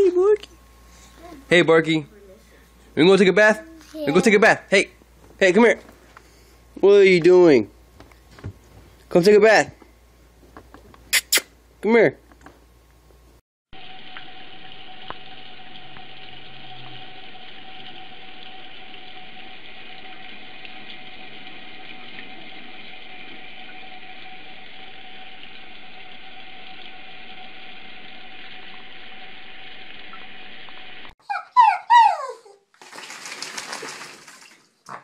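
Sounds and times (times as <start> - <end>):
faint whine: 13.8 - 31.1
dog whimpering: 31.2 - 32.6
tap water running into sink: 32.8 - 35.0.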